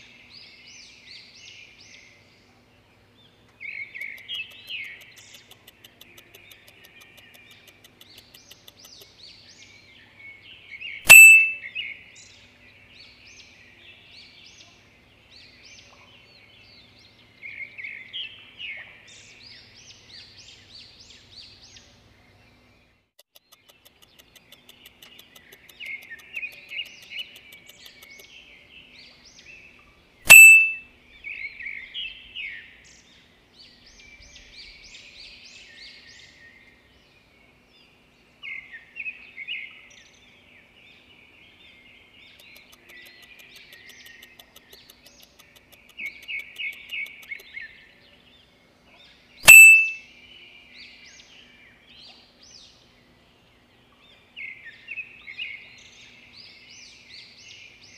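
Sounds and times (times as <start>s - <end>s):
songbirds chirping: 0.0s - 57.9s
loud sharp click with ring: 11.1s - 11.7s, 30.3s - 30.8s, 49.4s - 50.0s.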